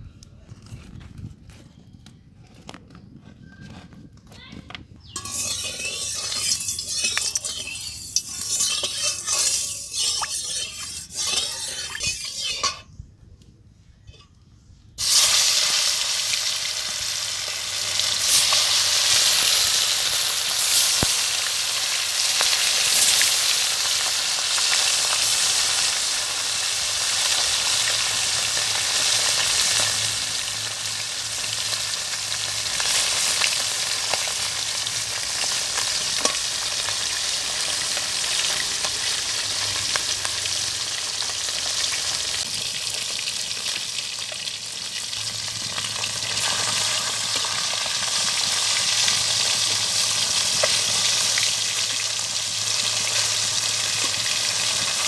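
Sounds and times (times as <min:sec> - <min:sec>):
metal spatula scraping wok: 0:05.1 - 0:13.0, 0:18.0 - 0:40.7
fish sizzling in hot oil: 0:05.2 - 0:12.7, 0:15.0 - 0:55.0.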